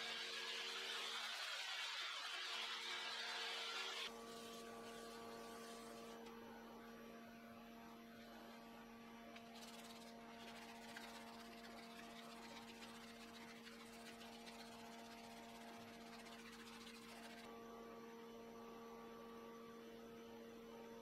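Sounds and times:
sanding pad on spinning wooden bowl: 0.0s - 6.3s, 9.4s - 17.5s.

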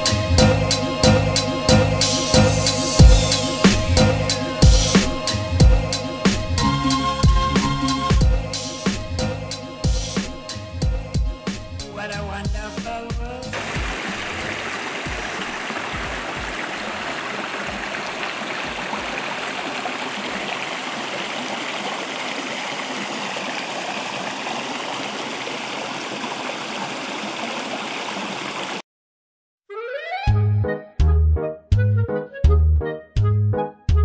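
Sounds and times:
music: 0.0s - 13.6s, 29.7s - 34.0s
water rushing over stones: 13.5s - 28.8s.

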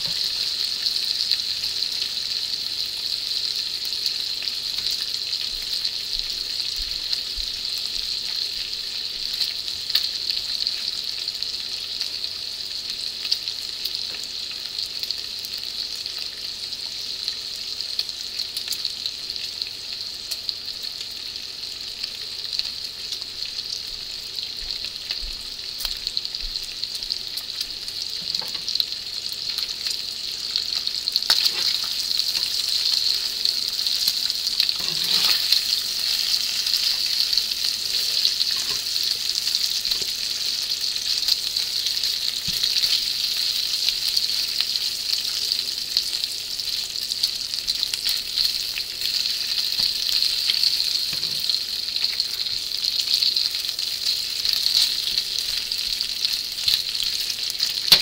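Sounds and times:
bacon sizzling in a skillet: 0.0s - 58.0s
metal tongs clicking on pan: 38.4s - 38.9s.

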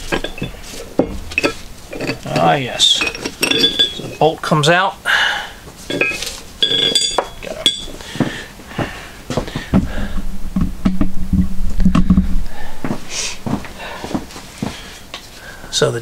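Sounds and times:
low steady rumble: 0.0s - 4.5s, 5.6s - 15.1s
steel parts clinking and ringing: 0.0s - 4.8s, 5.8s - 8.0s.

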